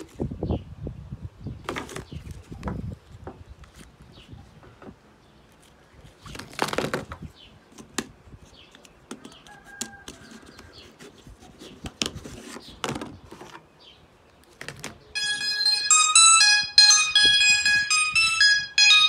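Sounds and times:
faint high calls: 15.2 - 19.0.

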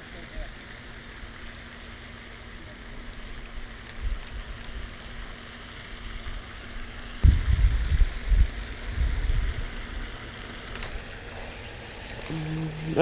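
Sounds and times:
faint steady hum: 0.0 - 13.0
steady outdoor hiss: 0.0 - 13.0
wind rumbling on microphone: 7.2 - 10.1.

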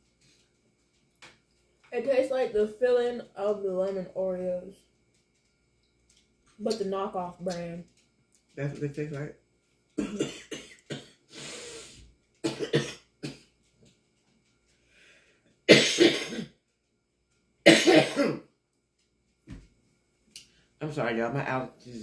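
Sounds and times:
woman talking: 1.9 - 4.8, 6.6 - 7.8, 20.8 - 22.0
woman clearing throat: 10.0 - 11.2, 12.4 - 13.4, 15.7 - 16.5, 17.7 - 18.4
woman coughing: 10.0 - 11.2, 12.4 - 13.4, 15.7 - 16.5, 17.7 - 18.4.

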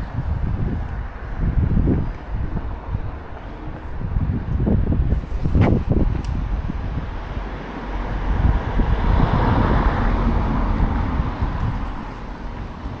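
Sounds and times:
wind gusts on microphone: 0.0 - 13.0
vehicle passing: 5.8 - 13.0.

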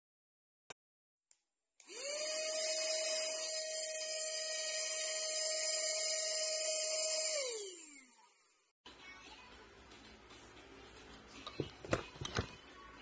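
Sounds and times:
mini vacuum cleaner motor whine: 1.9 - 8.4.

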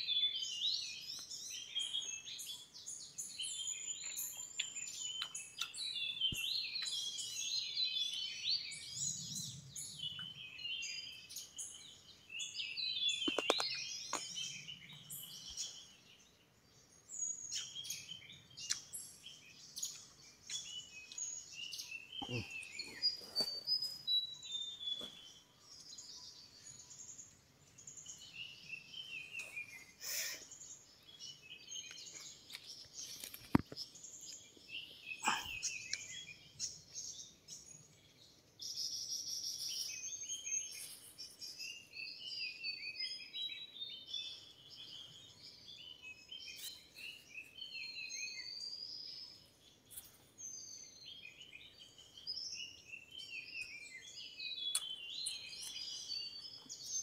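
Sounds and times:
forest birds singing: 0.0 - 57.0.

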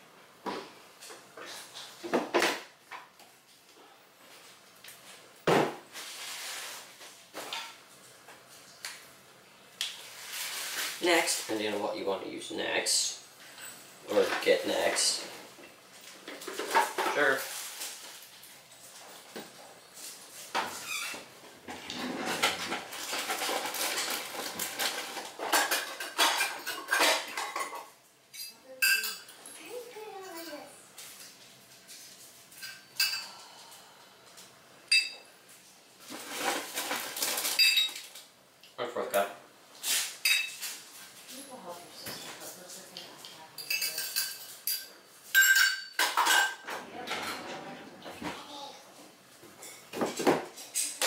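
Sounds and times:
kitchen utensils and dishes clattering: 0.5 - 3.1, 5.4 - 7.8, 12.6 - 31.3, 32.0 - 33.6, 34.9 - 35.3, 36.0 - 38.3, 39.8 - 41.2, 43.2 - 48.4, 49.5 - 51.0
rustling: 5.9 - 8.8, 9.9 - 11.8, 13.4 - 27.3, 35.4 - 38.3.

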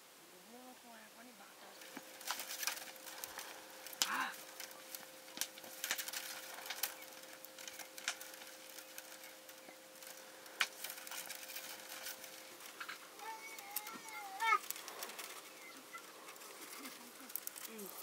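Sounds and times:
wood cracking and snapping: 1.7 - 18.0.

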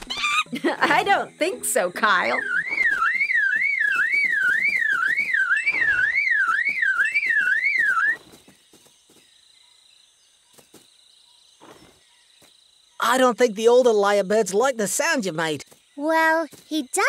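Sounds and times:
bird mimicking car alarm: 2.1 - 8.3.

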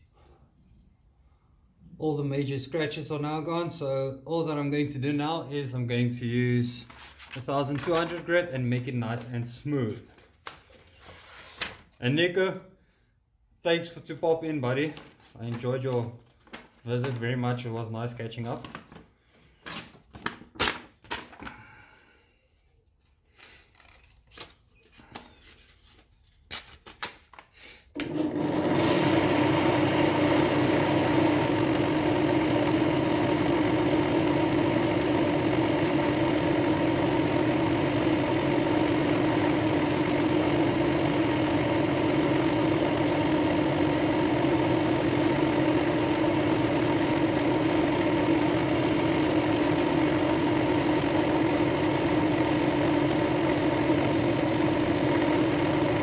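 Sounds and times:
drill press motor humming: 28.0 - 56.0.

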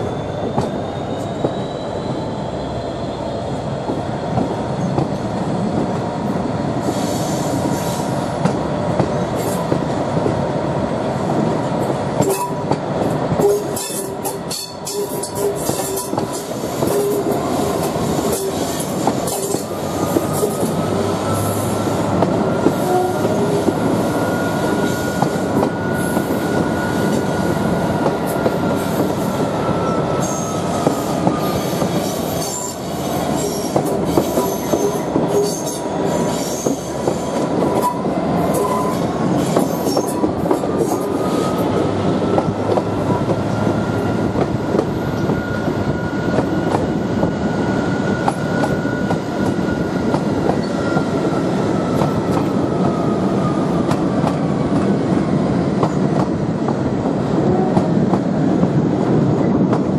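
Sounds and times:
diesel locomotive engine: 0.0 - 59.9
rail clicks: 3.8 - 10.5, 11.2 - 59.9.

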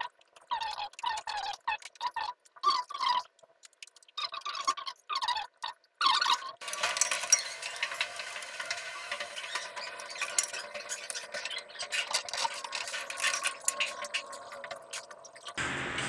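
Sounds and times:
hand tools scraping and clicking: 6.6 - 15.6.

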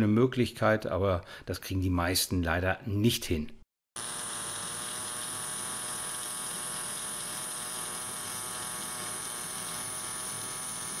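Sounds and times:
welding arc buzzing: 4.0 - 11.0.

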